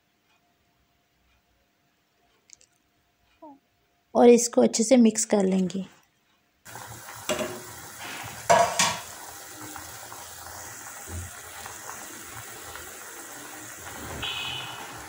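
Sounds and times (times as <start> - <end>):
water boiling: 6.7 - 15.0
spatula knocking saucepan: 7.2 - 7.8, 8.4 - 9.2.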